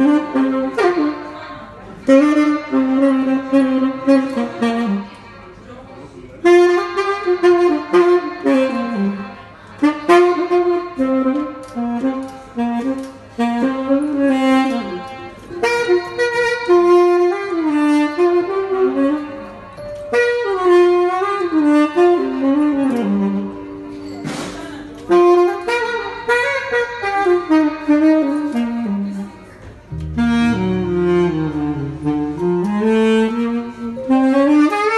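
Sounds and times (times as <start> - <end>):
solo saxophone playing: 0.0 - 5.2, 6.4 - 34.9.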